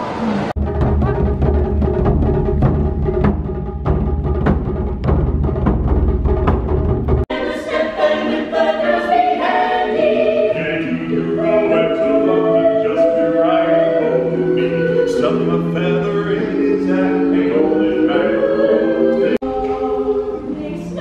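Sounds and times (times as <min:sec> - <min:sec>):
drums being struck: 0:00.6 - 0:07.3
a cappella choir singing: 0:07.3 - 0:21.0.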